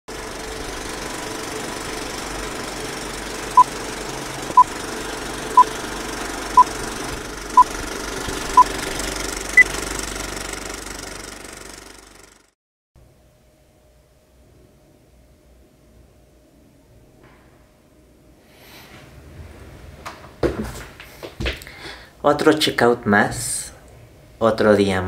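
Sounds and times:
steady mechanical rattle: 0:00.1 - 0:12.5.

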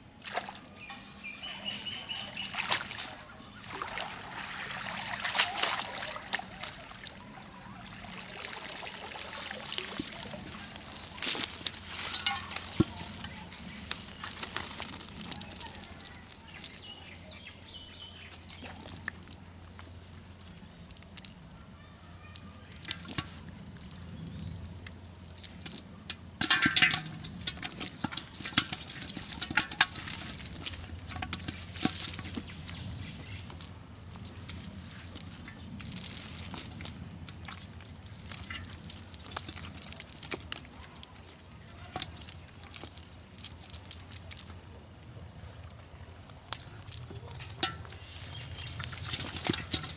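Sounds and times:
fish flapping and slapping: 0:03.8 - 0:07.1, 0:09.6 - 0:17.2, 0:26.4 - 0:44.5, 0:46.5 - 0:49.9
net mesh rustling: 0:09.9 - 0:17.2.

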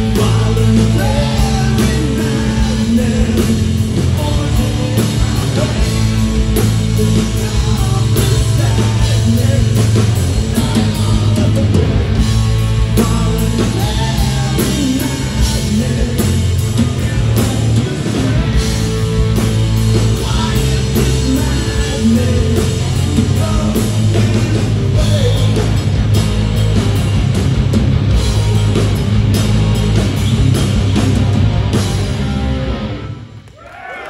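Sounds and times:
man singing: 0:00.0 - 0:12.0, 0:12.8 - 0:25.9
rock band playing: 0:00.0 - 0:33.6.

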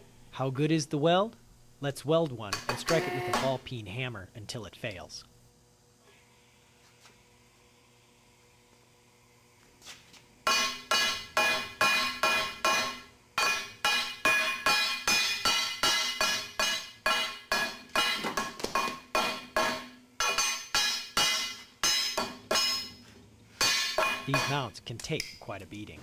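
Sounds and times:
hammer ringing on steel: 0:02.6 - 0:03.6, 0:10.5 - 0:22.9, 0:23.6 - 0:24.6.

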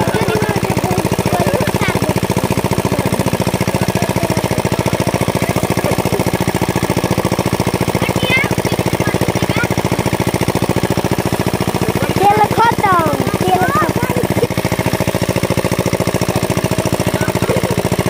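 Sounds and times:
pump engine chugging: 0:00.0 - 0:18.0.

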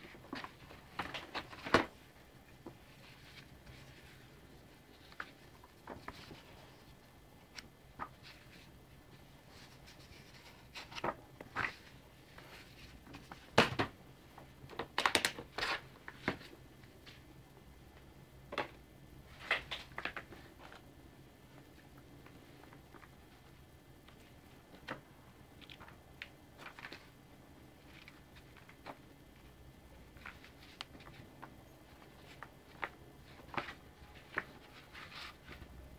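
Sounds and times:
paper rustling and sliding: 0:08.0 - 0:13.5, 0:30.2 - 0:35.7.

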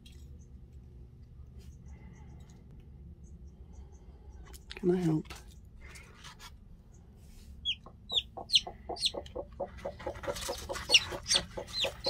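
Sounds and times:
chick peeping: 0:07.6 - 0:12.0
hen clucking: 0:07.6 - 0:12.0.

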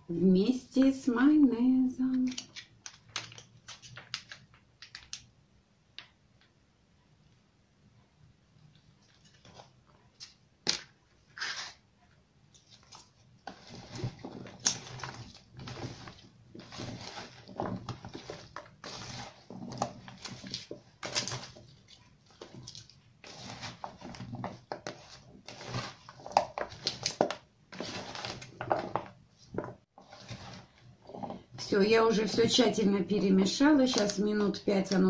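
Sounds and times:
hand mixing food in plastic bowl: 0:08.7 - 0:35.0.

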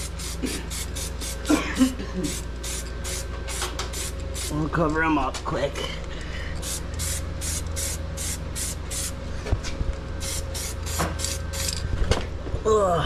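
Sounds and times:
spray paint hissing bursts: 0:00.0 - 0:01.5, 0:02.3 - 0:04.6, 0:06.6 - 0:09.2, 0:10.2 - 0:11.7.

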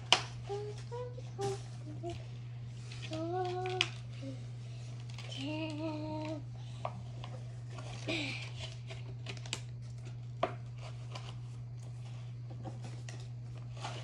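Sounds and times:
steady low hum: 0:00.0 - 0:14.0
packaging clicking and crinkling: 0:03.0 - 0:04.1, 0:04.9 - 0:06.4, 0:07.2 - 0:11.9.

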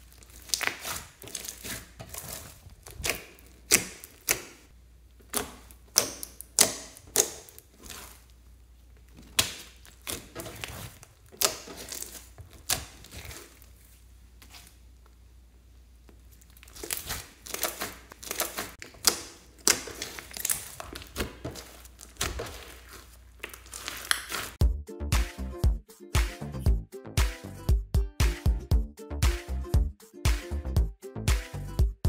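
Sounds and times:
slime sticky pops and clicks: 0:05.3 - 0:07.6.

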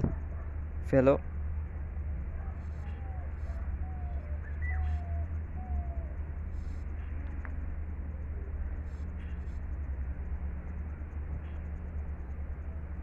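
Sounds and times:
steady low rumble: 0:00.0 - 0:13.0
falling bird calls: 0:02.6 - 0:06.2.

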